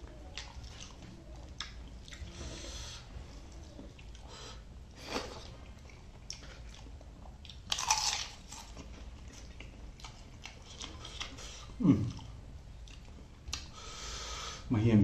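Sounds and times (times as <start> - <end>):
crunchy food crunching: 5.0 - 11.4.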